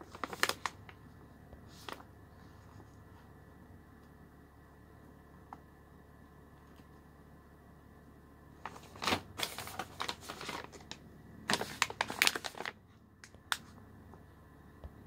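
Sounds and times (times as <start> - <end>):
plastic pouches crinkling: 0.0 - 1.0, 8.6 - 13.6.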